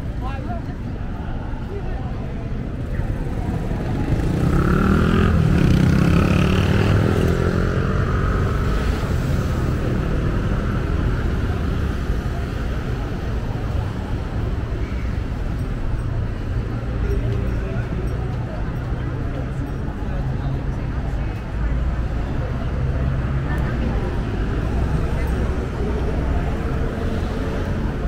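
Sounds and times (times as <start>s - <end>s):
street traffic rumble: 0.0s - 28.0s
vehicle engine passing by: 3.7s - 12.0s.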